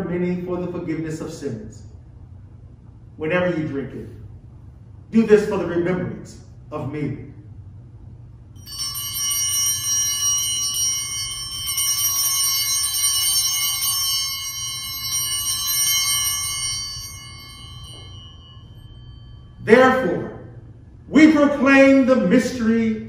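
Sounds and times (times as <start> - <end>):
altar bells ringing: 8.6 - 22.4.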